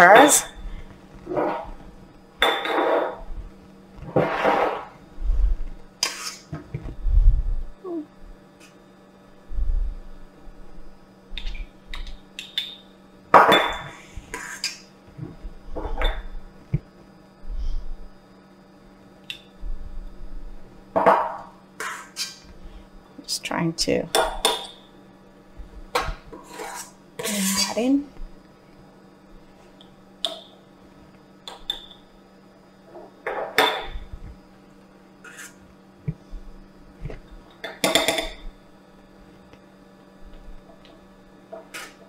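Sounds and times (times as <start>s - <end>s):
metal spoon scraping glass jars: 26.4s - 27.8s.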